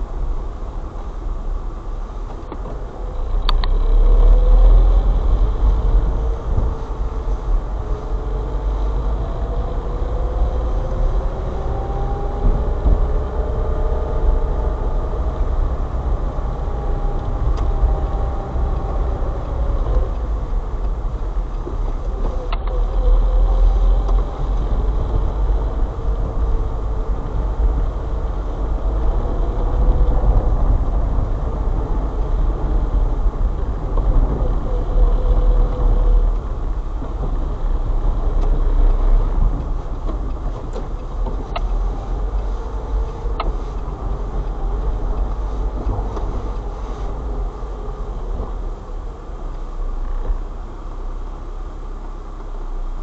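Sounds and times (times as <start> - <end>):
car engine and road rumble: 0.0 - 53.0.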